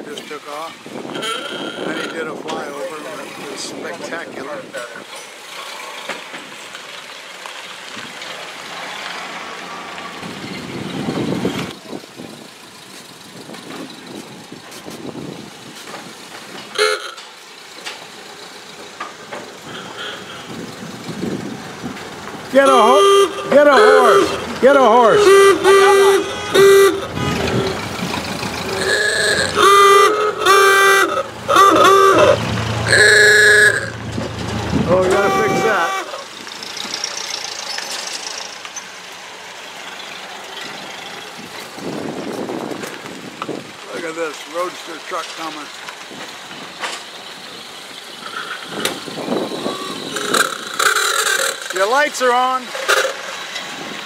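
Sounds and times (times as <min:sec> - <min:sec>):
old car engines driving past: 0:00.0 - 0:54.0
car horn honking: 0:01.1 - 0:02.3, 0:16.7 - 0:17.2, 0:19.6 - 0:20.8, 0:22.5 - 0:36.3, 0:48.2 - 0:51.7
low engine hum: 0:17.5 - 0:43.9.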